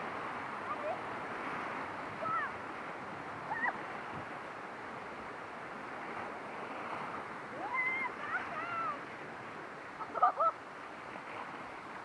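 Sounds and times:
whitewater rapids rushing: 0:00.0 - 0:12.0.

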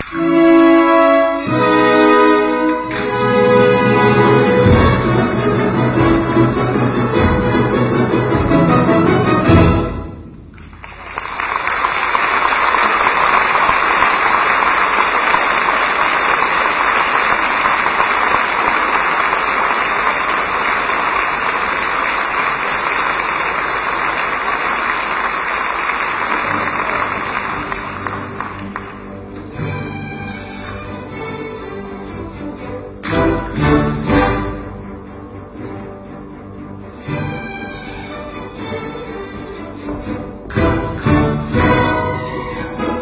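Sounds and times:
audience applauding: 0:10.5 - 0:31.2.

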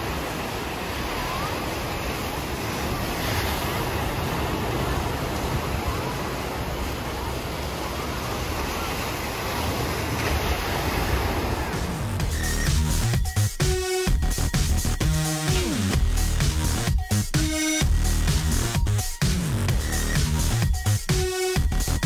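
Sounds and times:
waves breaking: 0:00.0 - 0:14.2.

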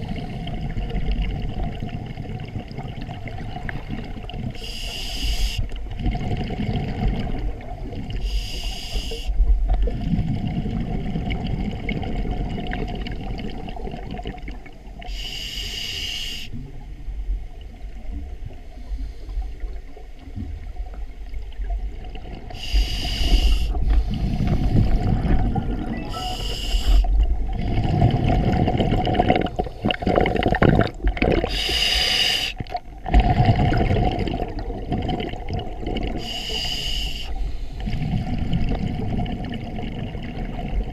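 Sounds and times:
exhaled bubbles rumbling: 0:00.0 - 0:04.6, 0:05.6 - 0:08.2, 0:09.4 - 0:15.0, 0:19.5 - 0:31.7, 0:32.6 - 0:36.4, 0:37.7 - 0:40.9
regulator hissing inhalations: 0:04.6 - 0:05.6, 0:08.2 - 0:09.3, 0:15.1 - 0:16.6, 0:22.6 - 0:25.1, 0:26.2 - 0:27.2, 0:31.5 - 0:32.6, 0:36.2 - 0:37.9.

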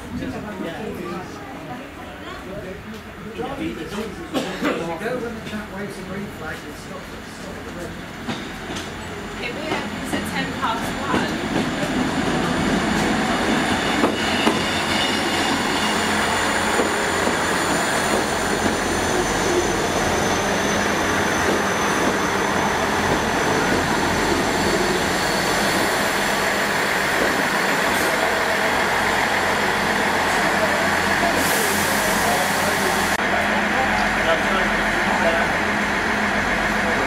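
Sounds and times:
diesel train engine rumble: 0:00.0 - 0:37.0
train wheels on rails: 0:05.0 - 0:37.0
high brake squeal: 0:13.6 - 0:16.8, 0:18.8 - 0:26.3.

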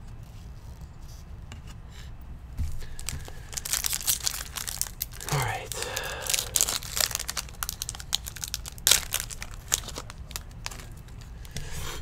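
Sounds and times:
card pack wrapper crinkling: 0:02.8 - 0:12.0.

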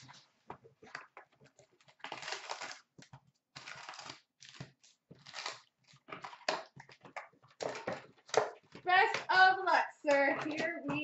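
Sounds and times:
card packs crinkling: 0:01.0 - 0:09.4
cardboard tearing: 0:01.8 - 0:06.7.

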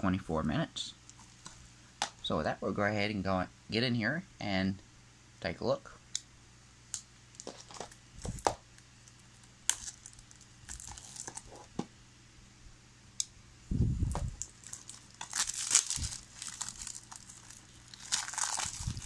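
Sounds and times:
plastic shrink wrap crinkling: 0:07.4 - 0:11.7, 0:14.1 - 0:19.0.

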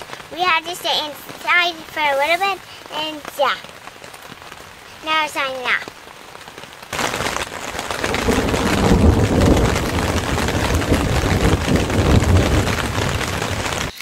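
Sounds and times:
heavy rain: 0:00.0 - 0:14.0
thunder rumbling: 0:06.9 - 0:14.0.

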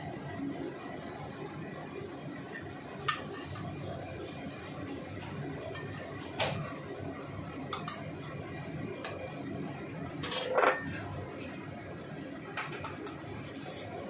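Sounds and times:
metal spatula clinking dishes: 0:03.1 - 0:03.7, 0:05.7 - 0:06.1, 0:07.7 - 0:08.1, 0:10.2 - 0:10.9.

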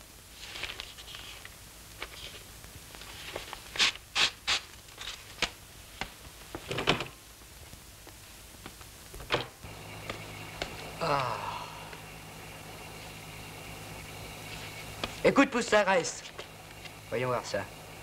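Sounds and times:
magazine paper rustling: 0:00.3 - 0:06.8, 0:14.4 - 0:15.3
paper ripping: 0:00.4 - 0:05.6.

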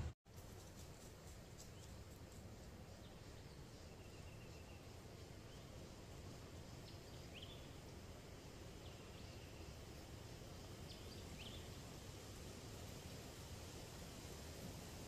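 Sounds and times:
steady background hiss: 0:00.0 - 0:15.0
faint bird chirps: 0:02.9 - 0:07.9.

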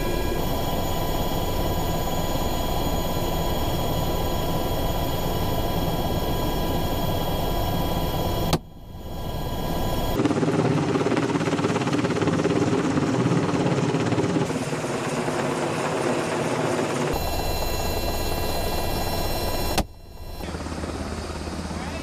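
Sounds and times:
high whine of several tones: 0:00.0 - 0:10.2, 0:17.1 - 0:22.0
helicopter rotor and engine rumble: 0:00.0 - 0:22.0.

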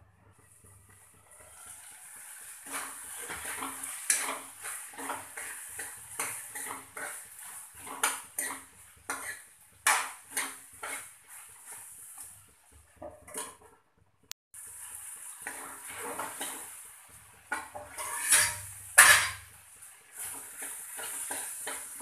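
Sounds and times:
spoon scraping and clinking a pan: 0:02.6 - 0:07.2, 0:07.8 - 0:11.1, 0:17.5 - 0:19.5.

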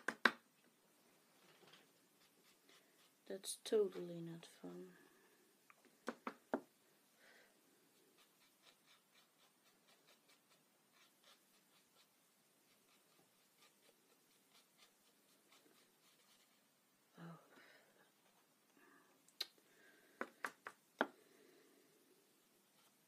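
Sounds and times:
brush and tissue rubbing paper: 0:02.1 - 0:04.1, 0:07.9 - 0:16.8.

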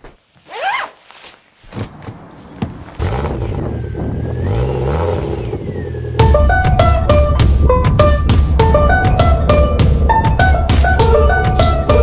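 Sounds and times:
engine starting and running: 0:02.9 - 0:08.4.

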